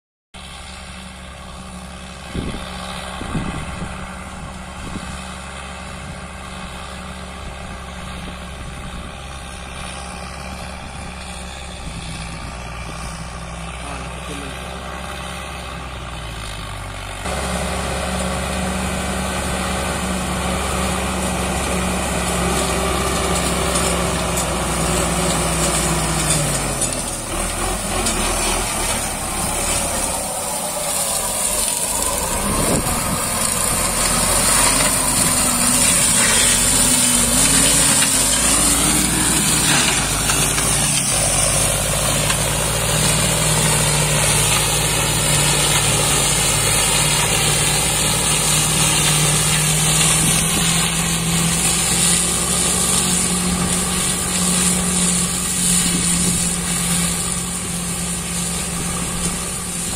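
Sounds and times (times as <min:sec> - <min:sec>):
tractor diesel engine running: 0:00.4 - 0:59.9.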